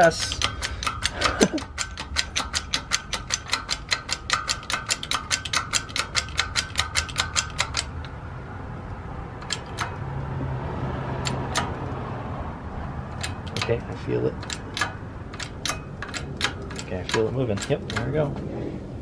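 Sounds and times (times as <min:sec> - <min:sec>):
hydraulic jack pumping clicks: 0:00.0 - 0:08.2, 0:09.4 - 0:10.0, 0:11.2 - 0:12.0, 0:13.1 - 0:18.4.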